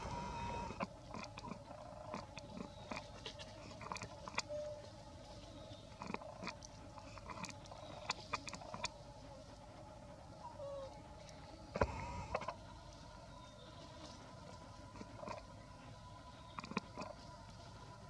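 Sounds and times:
monkey crunching and chewing: 0.7 - 4.5, 6.0 - 9.0, 14.6 - 15.4, 16.5 - 17.3.

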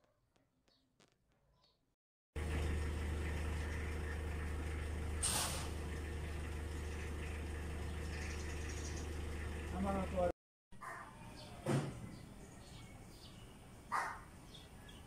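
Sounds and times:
low mechanical hum: 2.4 - 10.3
loud hiss: 5.2 - 5.8.

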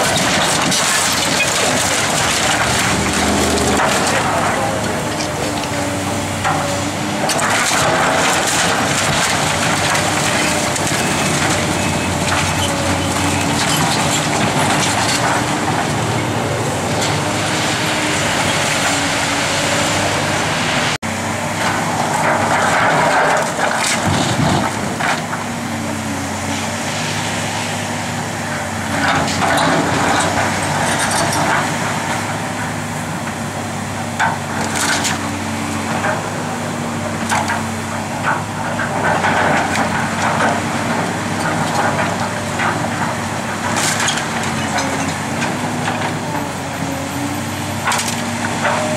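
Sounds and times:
concrete and wood rubble crunching: 0.0 - 19.8
excavator diesel engine running: 0.0 - 48.9.

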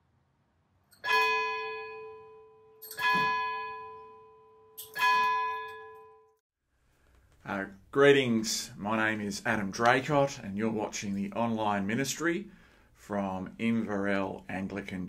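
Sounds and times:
church bell ringing: 1.0 - 6.3.

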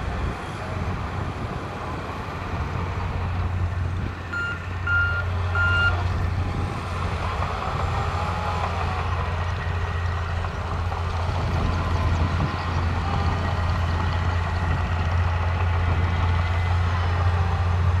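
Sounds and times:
diesel engines droning: 0.0 - 18.0
reversing beep: 4.3 - 6.0.

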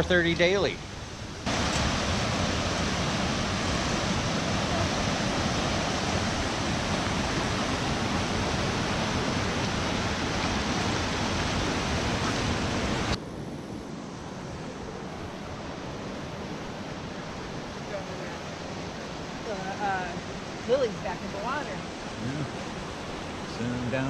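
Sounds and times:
steady water hiss: 0.0 - 13.2, 13.9 - 24.0
water rushing through dam gates: 0.0 - 13.2, 14.6 - 24.0.

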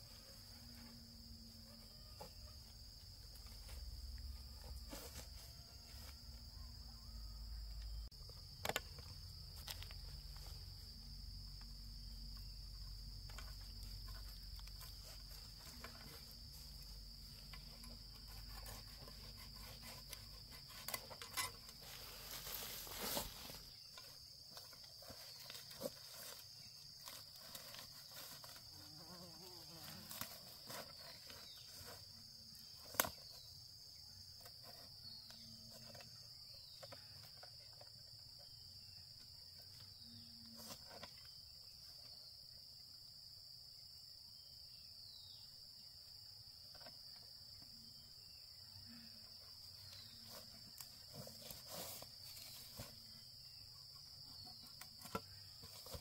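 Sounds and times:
insects droning: 0.0 - 56.0.

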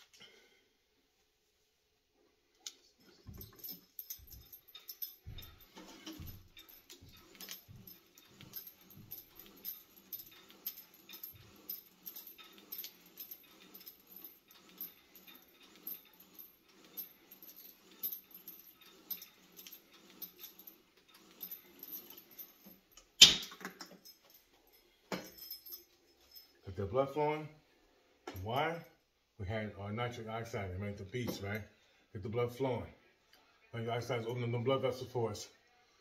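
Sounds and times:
chain jingling: 3.0 - 26.9.

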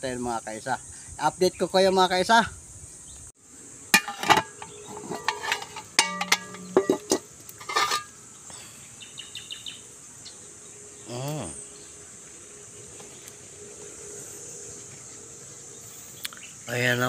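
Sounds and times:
pot lid and ladle clanking: 4.0 - 8.1
high-pitched insect drone: 8.0 - 17.0.

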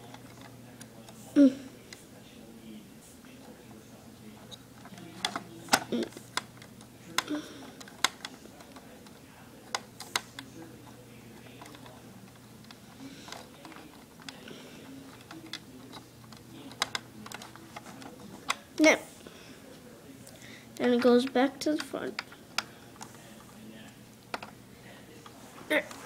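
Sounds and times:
plastic parts clicking and tapping: 4.8 - 10.5, 11.4 - 18.6, 20.8 - 24.6.

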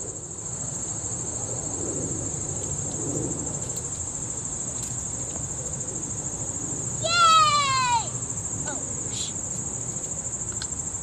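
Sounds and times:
insect chorus trilling: 0.0 - 11.0.

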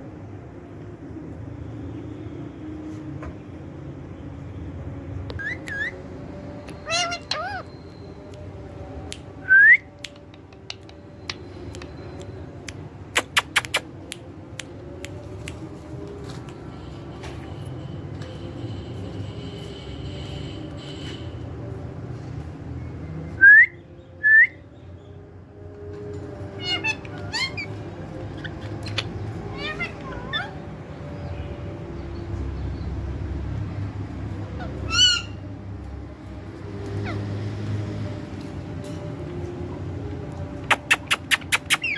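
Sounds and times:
parrot whistle: 5.4 - 6.0, 6.8 - 7.8
parakeet calling: 6.7 - 7.9, 26.6 - 30.6, 34.6 - 35.4, 40.8 - 41.9
harsh parakeet screech: 6.8 - 7.7, 26.6 - 27.7, 34.9 - 35.4.

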